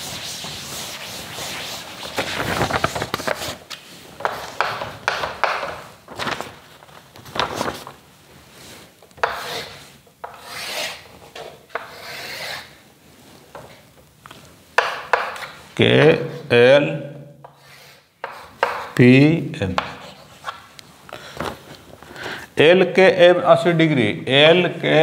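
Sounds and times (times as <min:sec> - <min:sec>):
chalk scraping on a board: 0:00.0 - 0:02.0, 0:09.2 - 0:12.8, 0:17.4 - 0:19.0
duster wiping a chalkboard: 0:00.0 - 0:04.8, 0:08.5 - 0:13.8, 0:17.4 - 0:19.0.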